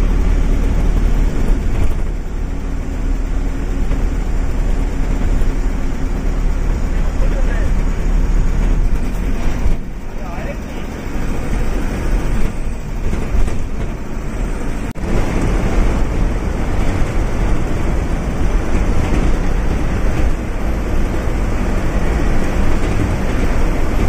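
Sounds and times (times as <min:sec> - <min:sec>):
bus rumbling: 0:00.0 - 0:24.0.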